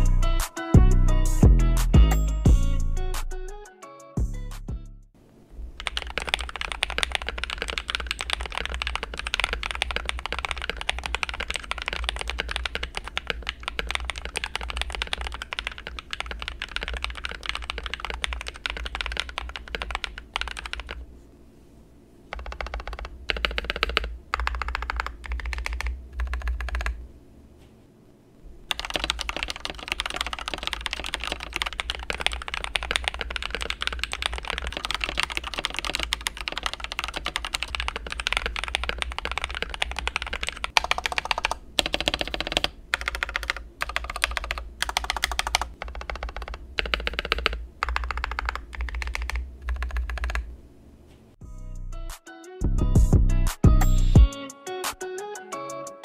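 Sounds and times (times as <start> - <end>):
typing on mechanical keyboard: 5.8 - 21.0, 22.3 - 27.0, 28.7 - 50.5.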